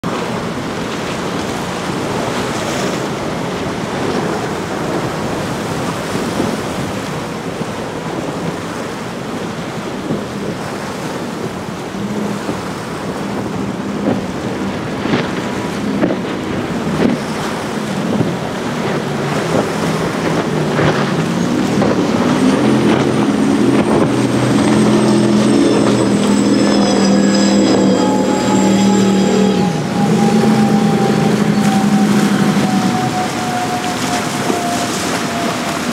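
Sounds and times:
powerboat engine drone: 0:00.0 - 0:35.9
wave wash: 0:00.0 - 0:35.9
wind noise on microphone: 0:00.0 - 0:35.9
high whine: 0:19.2 - 0:35.9.

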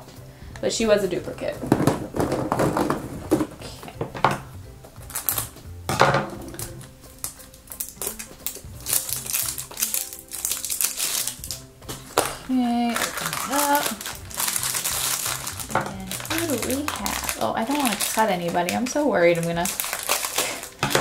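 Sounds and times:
background music: 0:00.0 - 0:21.0
plastic wrapper crinkling: 0:05.0 - 0:05.5, 0:06.5 - 0:21.0.

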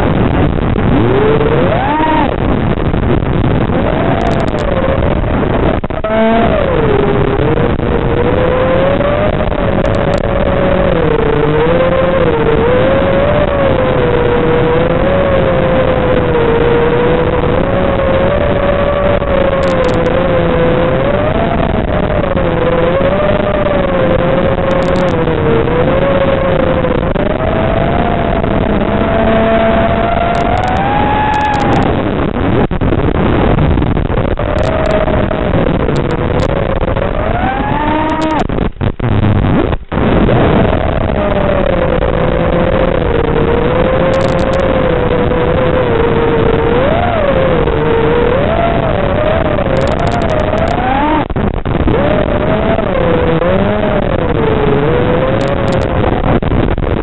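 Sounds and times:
quadcopter motors whining: 0:01.0 - 0:02.4, 0:27.6 - 0:31.9, 0:34.5 - 0:38.4.

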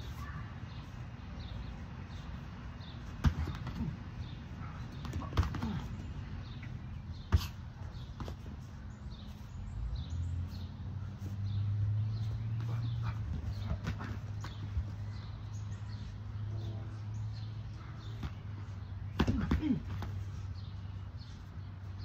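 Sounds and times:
footwork thuds: 0:02.8 - 0:09.5, 0:12.2 - 0:15.4
boxing gloves smacking: 0:03.2 - 0:04.0, 0:04.9 - 0:05.9, 0:19.1 - 0:20.2.

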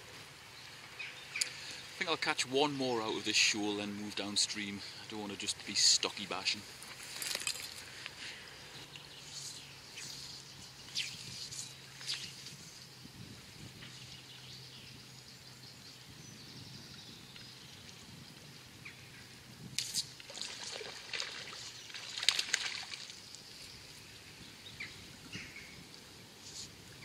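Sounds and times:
river water trickling: 0:00.0 - 0:27.0
birds calling faintly: 0:00.3 - 0:27.0
fly line scraping and swishing: 0:09.2 - 0:12.9, 0:19.7 - 0:23.7, 0:26.4 - 0:26.9.

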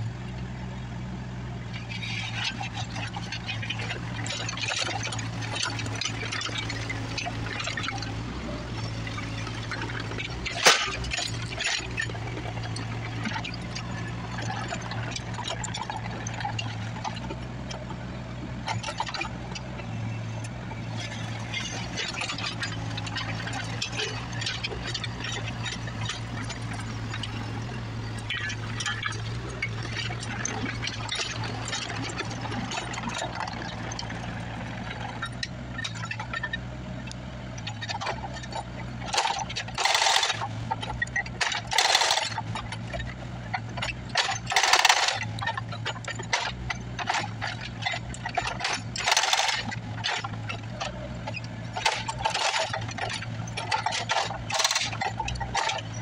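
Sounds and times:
diesel engine running: 0:00.0 - 0:56.0
rubble clinking and crackling: 0:01.8 - 0:56.0
metallic clinks and clatter: 0:37.6 - 0:56.0
hydraulic rock hammer on concrete: 0:39.1 - 0:40.4, 0:41.1 - 0:42.8, 0:43.8 - 0:45.3, 0:47.0 - 0:50.3, 0:54.0 - 0:56.0.

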